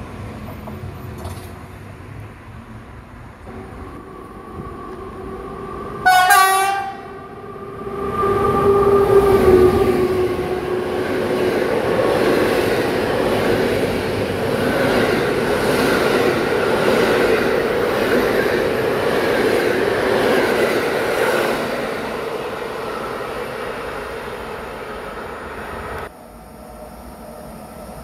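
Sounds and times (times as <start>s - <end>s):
train wheels rumbling on rails: 0.0s - 26.1s
locomotive horn: 6.0s - 7.2s.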